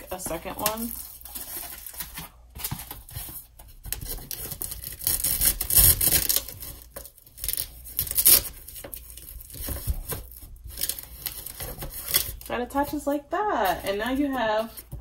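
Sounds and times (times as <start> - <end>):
velcro strap fastening: 5.0 - 6.6, 7.4 - 8.6.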